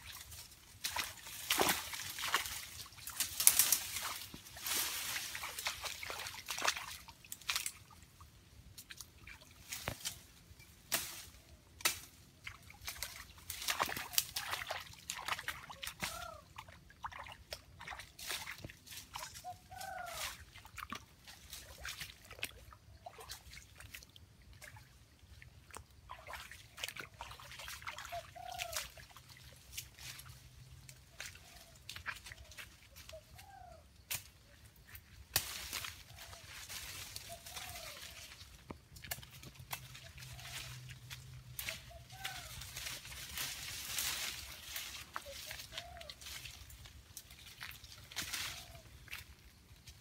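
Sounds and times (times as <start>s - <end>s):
squelching footsteps in mud: 0.0s - 10.5s, 11.4s - 50.0s
animal calls: 15.5s - 16.6s, 19.4s - 20.5s, 37.2s - 38.4s, 41.6s - 42.9s, 44.0s - 46.5s.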